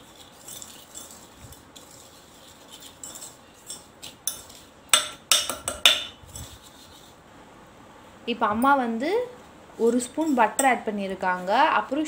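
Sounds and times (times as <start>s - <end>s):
whisk scraping metal bowl: 0.0s - 7.2s.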